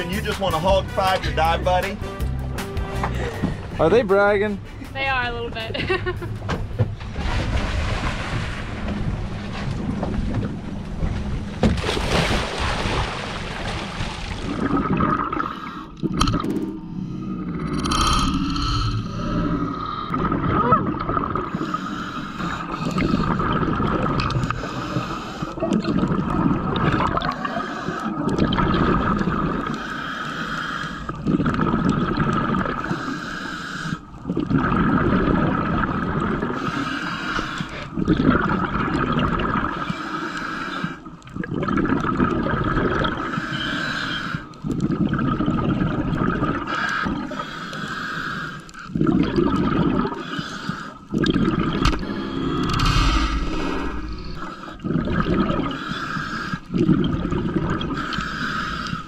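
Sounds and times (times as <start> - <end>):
exhaled bubbles gurgling: 14.1 - 59.0.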